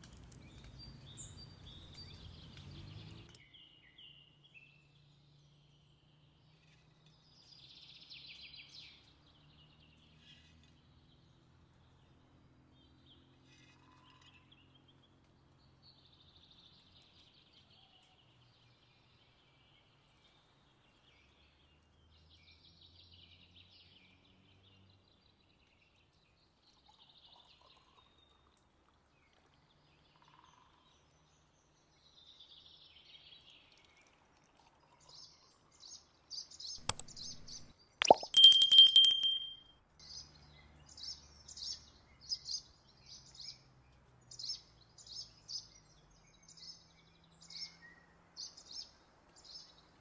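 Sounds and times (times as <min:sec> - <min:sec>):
liquid pouring into clay cup: 0:36.8 - 0:39.4.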